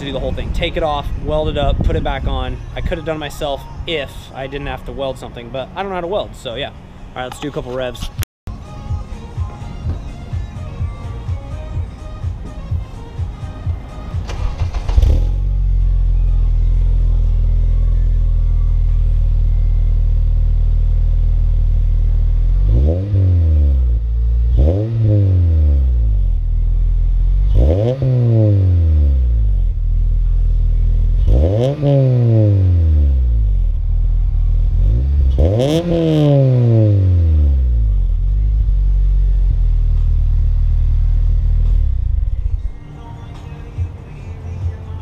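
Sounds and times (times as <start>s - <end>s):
car engine idling: 0.0s - 27.7s, 28.8s - 31.7s, 32.7s - 45.0s
engine throttle blips: 13.8s - 44.2s.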